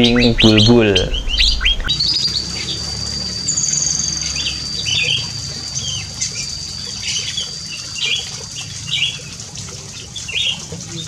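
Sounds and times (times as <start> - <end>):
steady high whine: 0.0 - 8.7.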